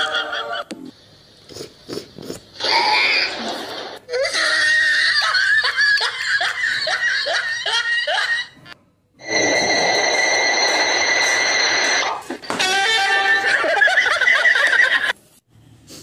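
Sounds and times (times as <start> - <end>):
person laughing heartily: 4.4 - 8.8, 12.9 - 15.2
steady hiss with high whine: 9.2 - 12.4.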